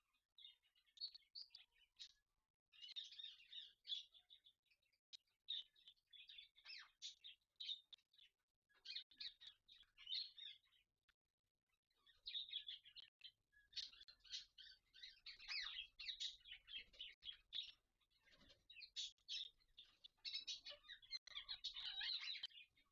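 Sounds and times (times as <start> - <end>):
parakeets chirping: 5.5 - 10.8, 12.0 - 22.9.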